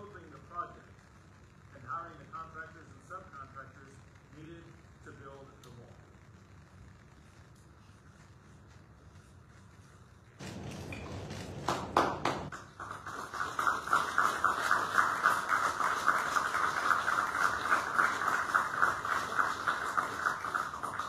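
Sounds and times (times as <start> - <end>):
people clapping: 10.4 - 21.0.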